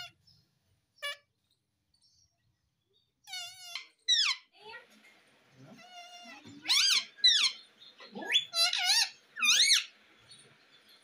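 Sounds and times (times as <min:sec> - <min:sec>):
parakeet high-pitched calls: 0:01.0 - 0:01.3, 0:03.2 - 0:04.5, 0:05.8 - 0:10.0.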